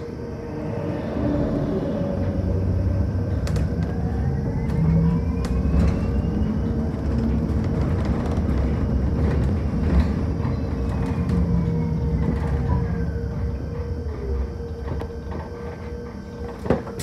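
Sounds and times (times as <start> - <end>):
road rumble: 0.0 - 16.4
electric drive whine: 0.0 - 17.0
steady hum: 0.0 - 17.0.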